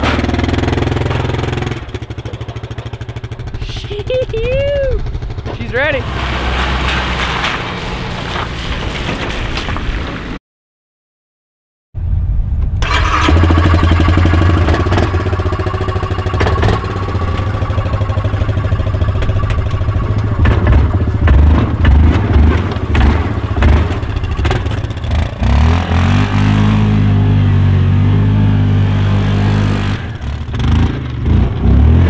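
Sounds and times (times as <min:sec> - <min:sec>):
knocks and clatter: 0:00.0 - 0:03.6, 0:05.0 - 0:10.4, 0:13.3 - 0:26.3
atv engine revving: 0:00.0 - 0:06.6, 0:12.8 - 0:32.0.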